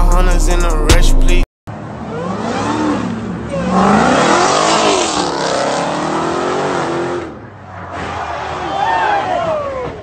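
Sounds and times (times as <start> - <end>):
car engine revving: 1.7 - 8.7.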